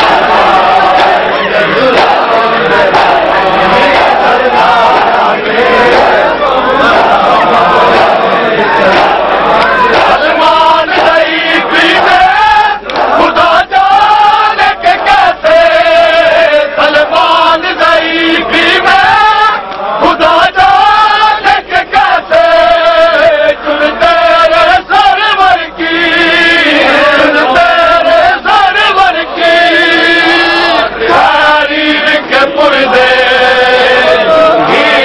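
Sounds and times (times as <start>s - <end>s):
men chanting a lament: 0.0s - 35.0s.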